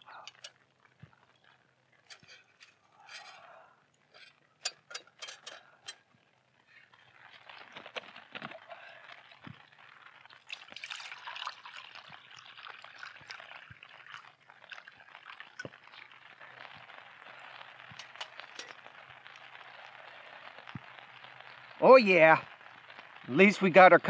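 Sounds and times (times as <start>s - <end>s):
small ticks and clicks: 0.0s - 11.0s, 11.7s - 23.3s
water pouring into metal cup: 7.3s - 19.6s.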